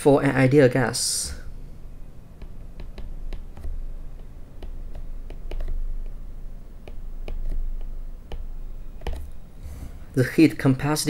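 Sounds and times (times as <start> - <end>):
low background rumble: 0.0 - 11.0
stylus tapping on glass screen: 2.4 - 9.4.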